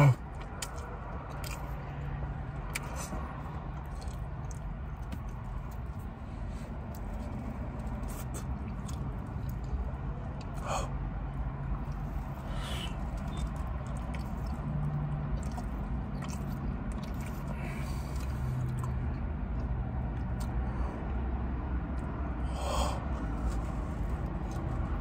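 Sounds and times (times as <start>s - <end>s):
person chewing food: 0.2s - 25.0s
wet mouth clicks and smacks: 0.3s - 6.1s, 7.7s - 10.7s, 11.7s - 20.6s.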